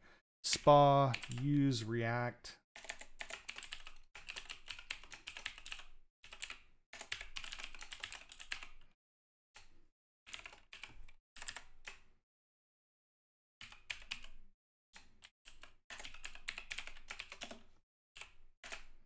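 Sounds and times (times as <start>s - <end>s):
fast typing on keyboard: 1.0s - 1.6s, 2.8s - 8.8s, 10.3s - 12.1s, 13.6s - 14.4s, 15.2s - 19.0s.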